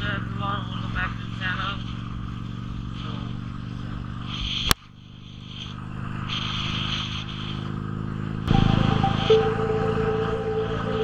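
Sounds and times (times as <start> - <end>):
motorcycle engine cruising: 0.0 - 11.0.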